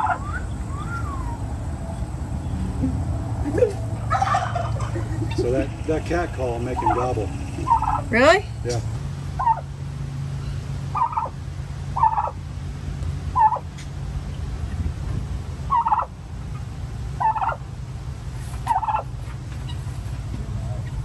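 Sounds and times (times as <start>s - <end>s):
turkey gobbling: 0.0s - 8.8s, 9.4s - 9.7s, 10.9s - 12.4s, 13.3s - 13.9s, 15.7s - 17.7s, 18.4s - 21.0s.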